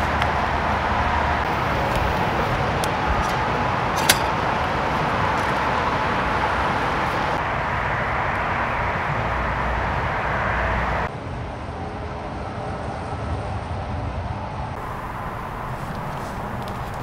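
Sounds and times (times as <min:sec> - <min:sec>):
rain and river rushing: 0:00.0 - 0:11.1, 0:14.8 - 0:17.0.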